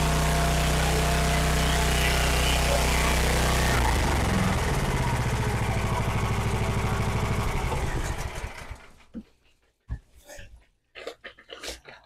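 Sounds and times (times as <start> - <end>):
gas engine running: 0.0 - 9.0.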